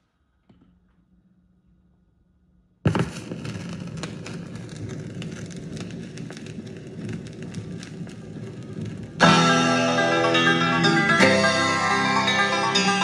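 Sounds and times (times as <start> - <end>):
vinyl surface crackle and pops: 2.9 - 12.8.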